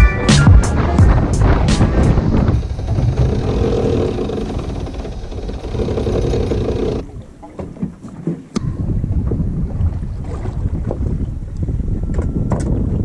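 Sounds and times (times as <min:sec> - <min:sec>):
boat motor running: 0:01.4 - 0:07.2.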